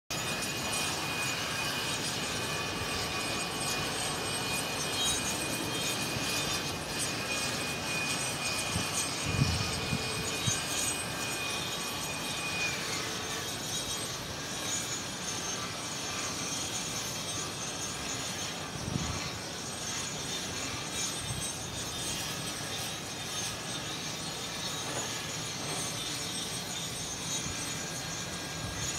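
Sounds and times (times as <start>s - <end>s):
thin high whine: 0.1s - 28.9s
wind: 0.1s - 28.9s
construction machinery noise: 0.2s - 28.9s
wind buffeting microphone: 8.4s - 10.9s, 18.7s - 19.6s.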